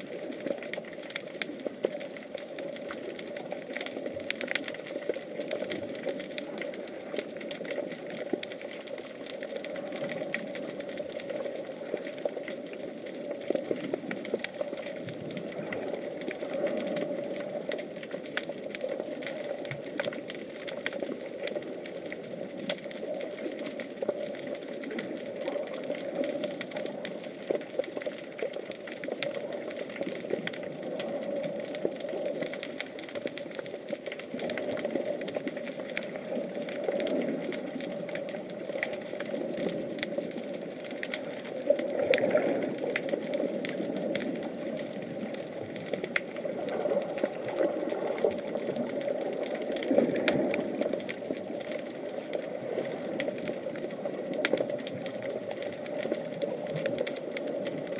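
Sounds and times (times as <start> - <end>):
fine crackling clicks: 0.0 - 57.9
muffled underwater rush: 0.0 - 57.9.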